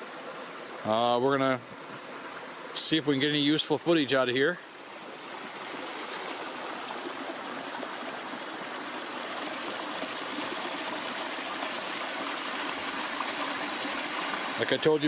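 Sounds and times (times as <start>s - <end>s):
creek rushing over stones: 0.0s - 15.0s.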